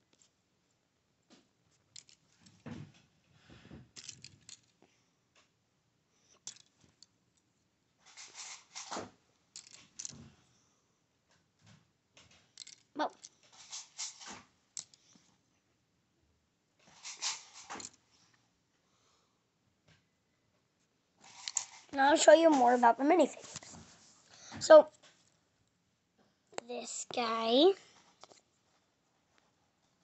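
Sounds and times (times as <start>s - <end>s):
plastic pieces clicking and rattling: 1.9s - 2.6s, 4.0s - 4.8s, 6.3s - 7.1s, 8.1s - 10.2s, 12.2s - 15.1s, 16.8s - 18.0s, 21.2s - 22.6s, 28.2s - 28.4s
rustling handling noises: 6.3s - 10.4s, 21.2s - 25.4s.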